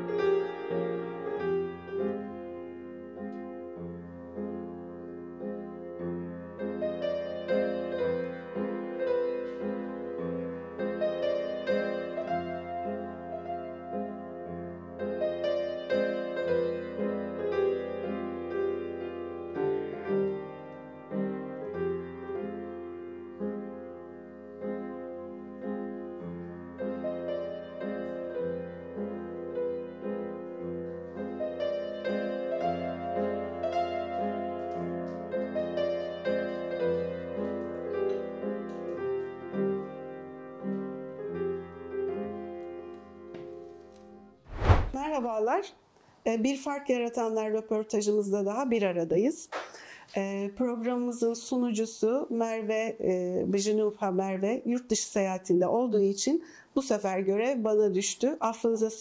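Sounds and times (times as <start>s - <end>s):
slow piano piece: 0.0s - 44.4s.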